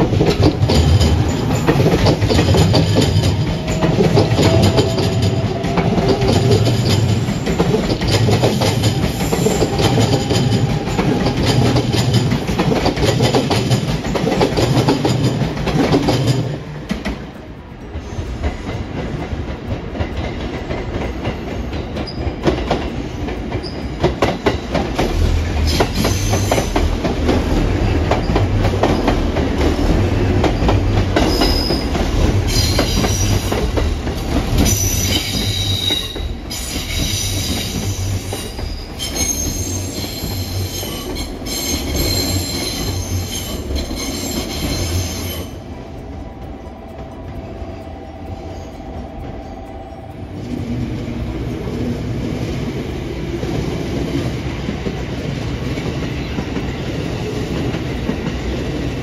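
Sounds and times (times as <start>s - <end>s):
train rumble: 0.0s - 59.0s
train wheels clicking on rail joints: 0.0s - 59.0s
high-pitched wheel squeal: 31.2s - 33.6s, 34.6s - 45.6s.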